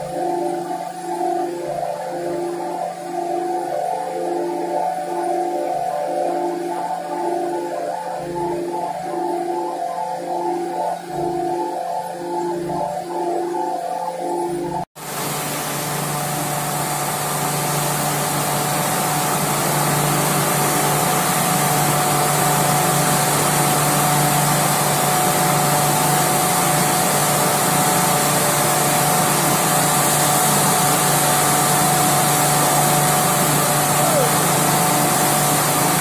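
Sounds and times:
drilling machine running: 15.0 - 36.0
thin steady whine: 15.0 - 36.0.

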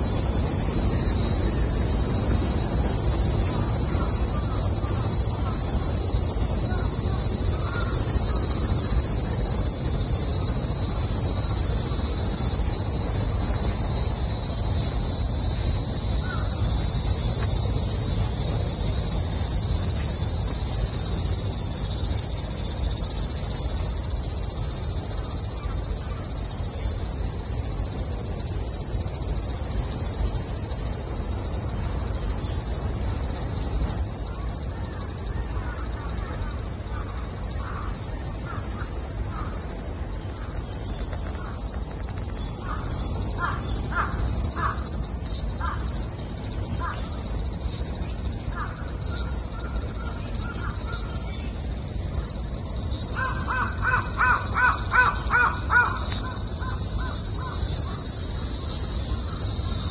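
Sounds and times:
cicadas singing: 0.0 - 59.9
bird calls: 53.1 - 58.1.

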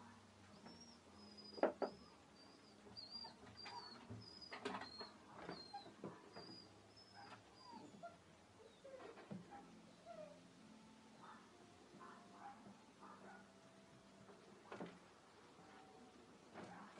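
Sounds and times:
kittens scuffling in a wire cage: 2.9 - 8.1, 14.3 - 16.9.

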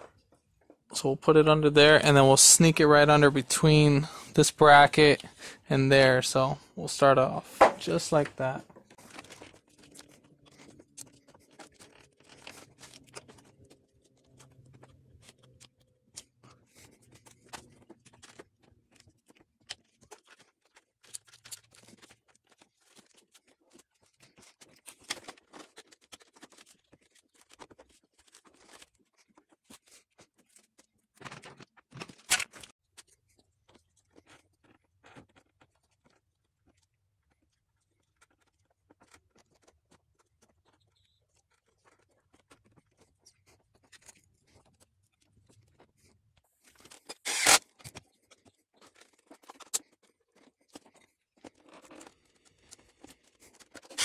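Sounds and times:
spark plug wires rustling and clicking: 46.9 - 48.0.

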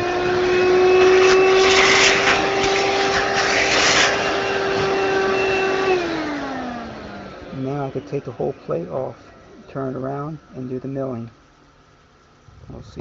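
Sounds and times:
electric motor whining: 0.0 - 9.6
rushing hiss: 1.0 - 4.8.

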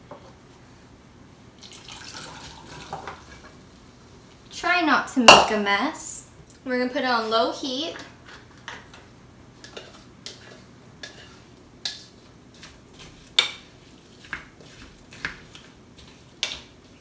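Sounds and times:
spatula scraping a bowl: 9.6 - 17.0.

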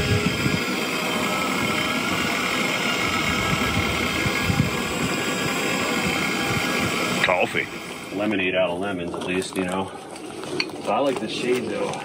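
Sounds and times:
camp stove burner hissing: 0.0 - 8.8.

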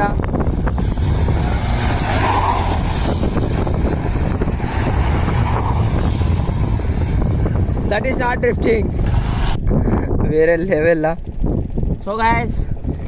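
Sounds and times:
motorcycle engine revving: 0.0 - 9.7.

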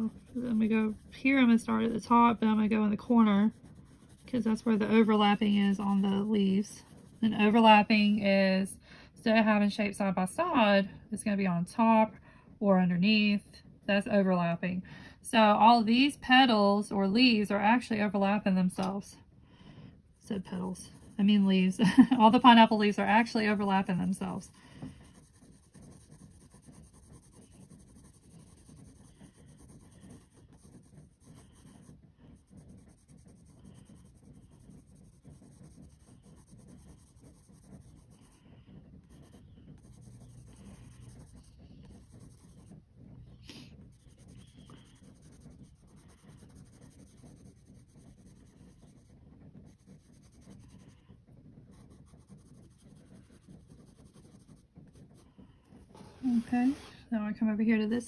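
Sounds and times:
pencil scratching on paper: 0.0 - 8.2, 20.3 - 57.0.

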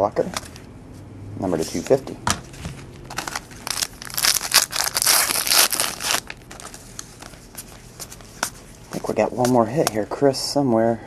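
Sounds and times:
card pack wrapper crinkling and tearing: 3.0 - 7.7.

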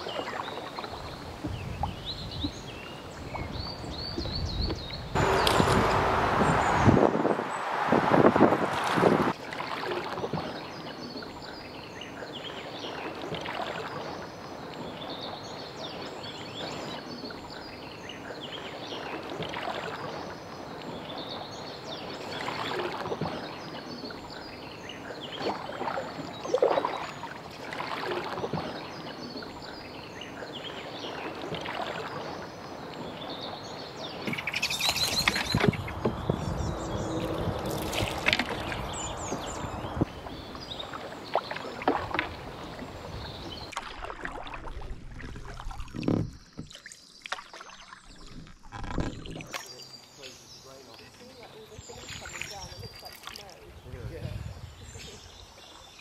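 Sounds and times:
birds calling: 0.0 - 8.2, 9.7 - 43.8
canoe paddle strokes in water: 0.0 - 11.6, 12.3 - 49.8
loud rush of noise: 5.2 - 9.4.

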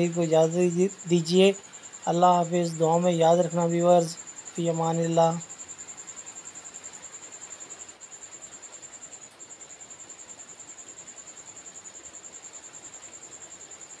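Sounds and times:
insect trilling: 0.0 - 14.0.

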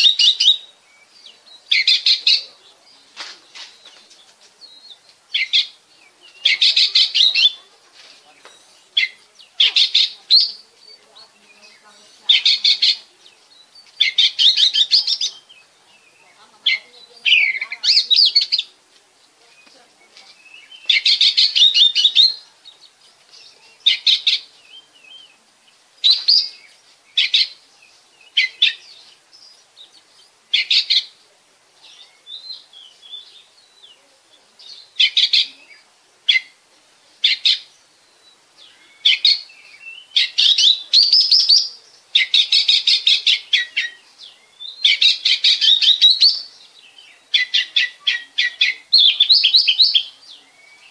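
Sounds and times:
bird whistled song: 0.0 - 2.4, 13.9 - 18.6, 19.5 - 22.8, 26.0 - 29.6, 37.2 - 50.9.

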